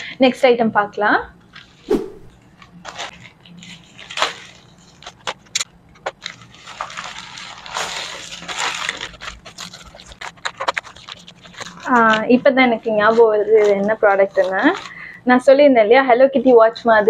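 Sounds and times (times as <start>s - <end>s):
plastic bag crinkling: 6.4s - 12.2s.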